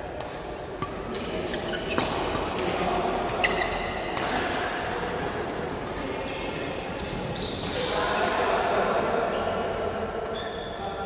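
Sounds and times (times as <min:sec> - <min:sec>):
court shoes squeaking: 0:00.0 - 0:05.0, 0:06.2 - 0:08.0, 0:09.3 - 0:11.0
racket striking shuttlecock: 0:00.2 - 0:04.6.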